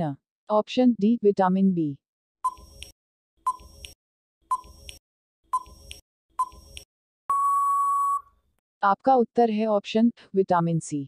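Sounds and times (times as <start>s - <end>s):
long steady beep: 7.3s - 8.3s
short electronic beeps: 7.3s - 8.3s.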